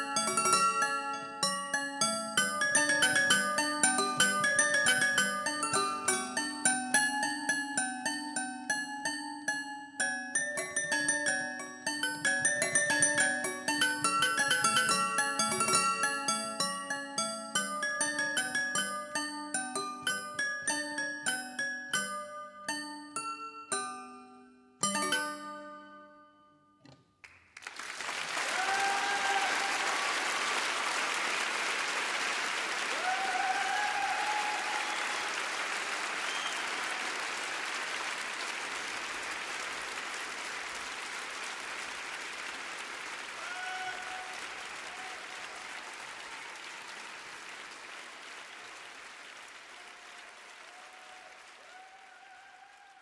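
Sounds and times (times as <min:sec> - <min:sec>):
chime-like music notes: 0:00.0 - 0:26.8
crowd applauding and cheering: 0:27.2 - 0:53.0
short shouts: 0:43.4 - 0:45.3.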